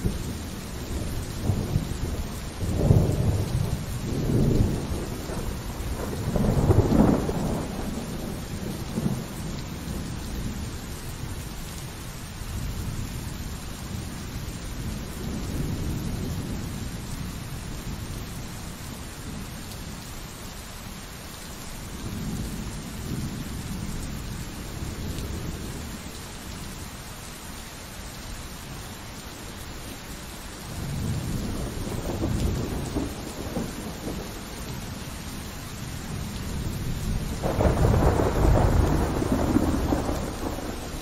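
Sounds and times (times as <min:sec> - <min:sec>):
rolling thunder: 0:00.0 - 0:10.7, 0:30.7 - 0:35.0, 0:36.1 - 0:41.0
pouring rain: 0:00.0 - 0:41.0.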